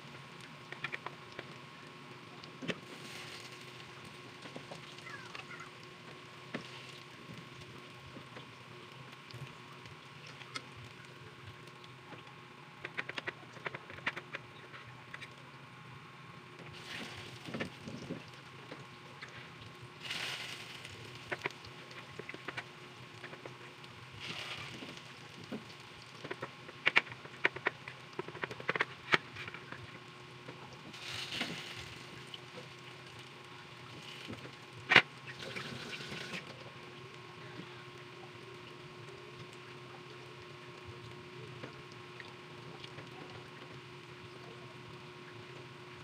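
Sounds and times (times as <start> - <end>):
oil popping and crackling: 0.2 - 1.7, 2.4 - 15.6, 16.6 - 44.4
patties sizzling in oil: 16.7 - 28.2, 30.8 - 36.5.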